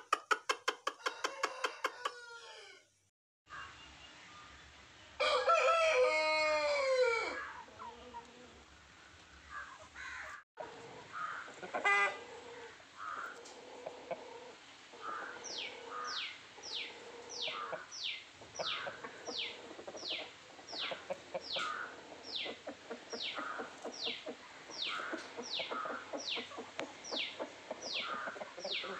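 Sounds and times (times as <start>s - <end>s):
chickens clucking: 0.0s - 2.8s, 6.1s - 28.9s.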